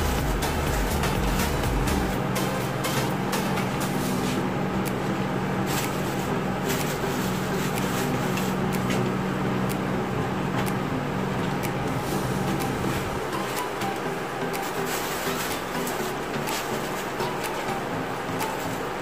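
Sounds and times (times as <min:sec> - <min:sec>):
steady low hum: 0:00.0 - 0:19.0
plastic sheeting rustling: 0:14.6 - 0:19.0.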